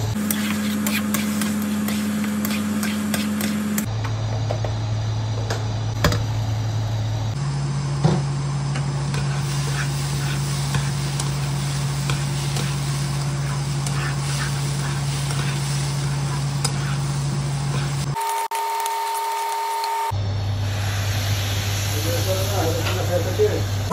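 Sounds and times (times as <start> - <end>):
steady low hum: 0.0 - 18.2
metal spatula scraping rice in pan: 9.2 - 18.1.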